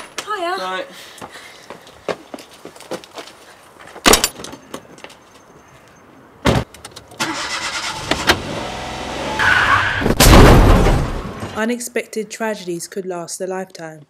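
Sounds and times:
car engine starting and running: 7.2s - 11.6s.

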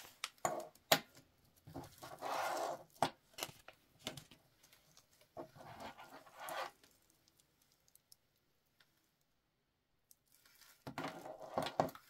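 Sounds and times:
plastic packaging crinkling: 10.2s - 11.2s.

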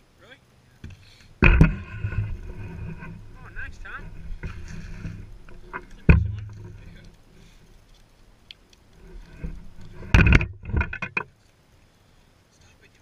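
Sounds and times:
fish tapping and knocking: 0.8s - 7.5s, 9.0s - 11.3s.

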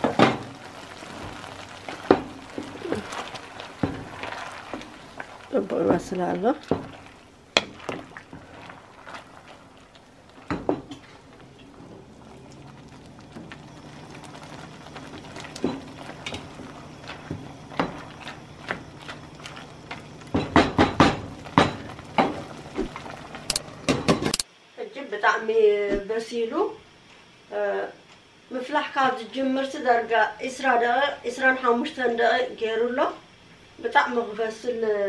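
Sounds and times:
wooden spoon stirring seeds in water: 0.0s - 23.6s.

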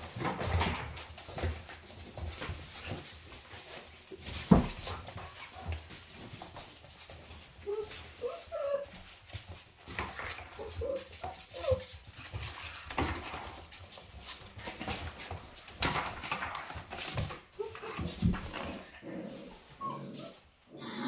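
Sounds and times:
puppies scuffling: 0.0s - 20.6s
puppies whimpering: 7.6s - 9.0s, 10.5s - 11.9s, 19.8s - 20.5s.

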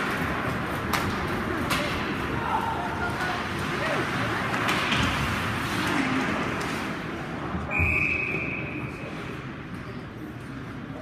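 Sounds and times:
referee's whistle blast: 7.7s - 8.8s.

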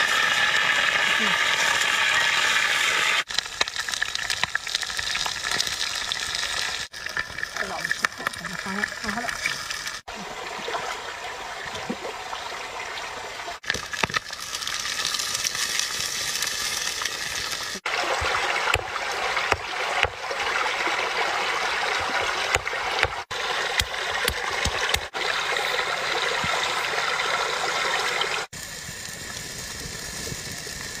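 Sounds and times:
frying in hot oil: 0.0s - 10.1s, 13.6s - 20.6s, 28.2s - 31.0s.

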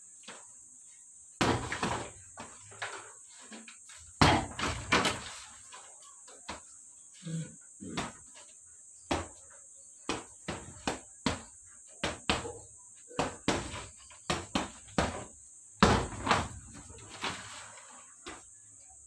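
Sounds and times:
punches thudding on heavy bag: 1.4s - 2.1s, 4.2s - 5.2s, 13.2s - 16.7s.

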